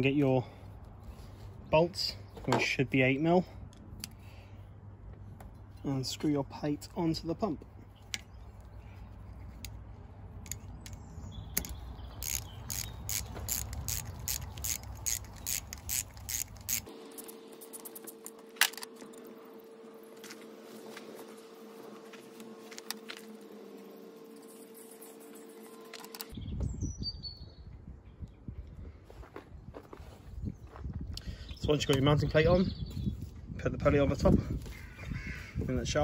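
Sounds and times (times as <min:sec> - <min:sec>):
socket ratchet clicking: 0:10.4 - 0:16.9.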